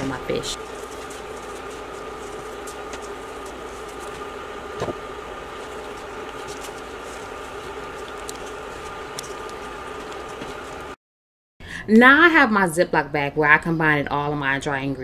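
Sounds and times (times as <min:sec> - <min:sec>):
background hum: 0:00.0 - 0:11.0.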